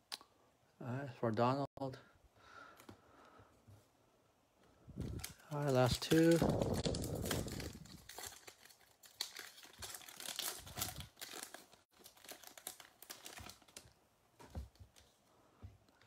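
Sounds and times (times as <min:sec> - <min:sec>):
card pack wrappers tearing and crinkling: 0:05.0 - 0:14.0.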